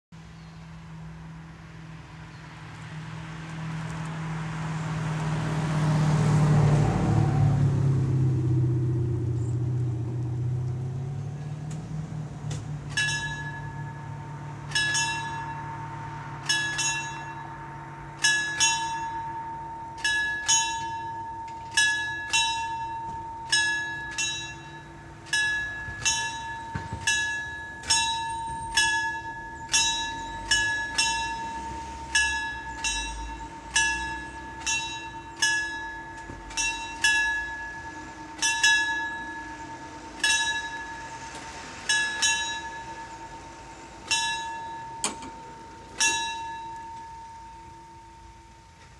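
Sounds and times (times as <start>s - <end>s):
level crossing warning bells: 10.0s - 48.9s.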